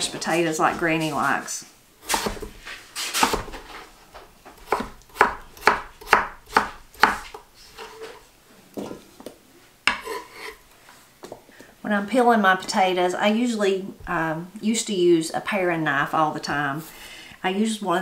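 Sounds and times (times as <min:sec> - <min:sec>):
knife chopping on wooden board: 0:02.0 - 0:03.7, 0:04.5 - 0:07.4.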